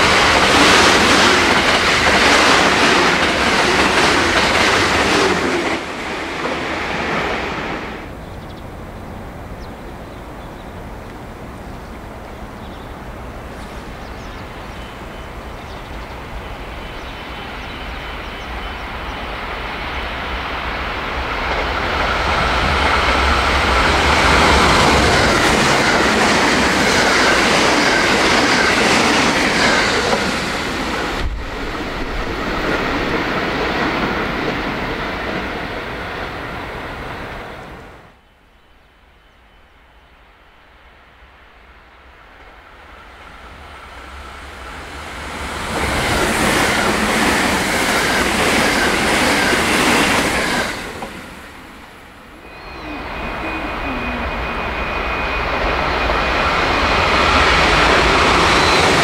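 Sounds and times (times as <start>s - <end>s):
clickety-clack over rail joints: 0.0s - 7.4s, 21.4s - 36.4s, 45.3s - 51.4s
train wheels rushing on rails: 0.0s - 38.2s, 41.6s - 59.0s.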